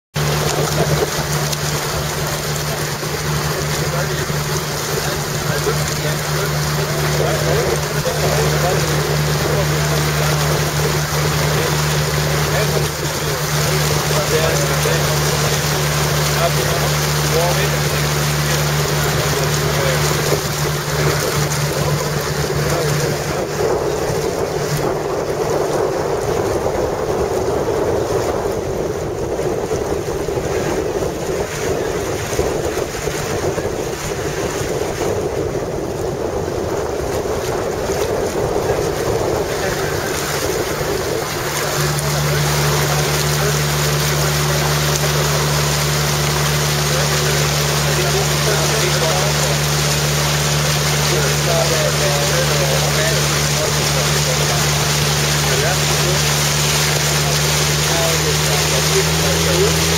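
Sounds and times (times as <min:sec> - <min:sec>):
boat engine droning: 0:00.0 - 0:59.9
water rushing past hull: 0:00.0 - 0:59.9
wind buffeting microphone: 0:00.2 - 0:59.9.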